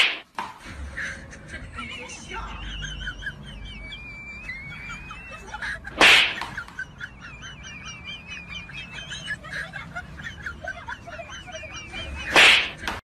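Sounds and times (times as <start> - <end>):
hand slapping head: 0.0 - 0.5, 6.0 - 6.6, 12.3 - 13.0
birds chirping: 2.7 - 13.0.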